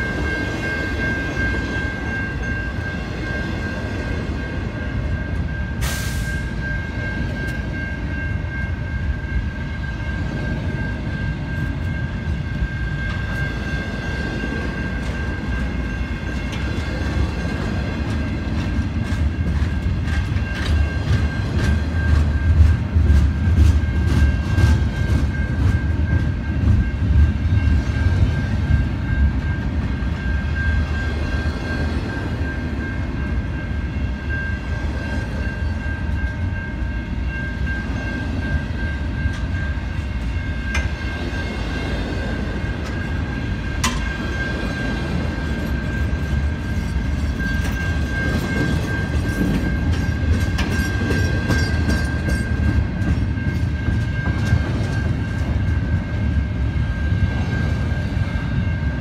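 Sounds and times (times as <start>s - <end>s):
train wheels rumbling on rail: 0.0s - 59.0s
wheels clicking over rail joints: 45.0s - 55.6s.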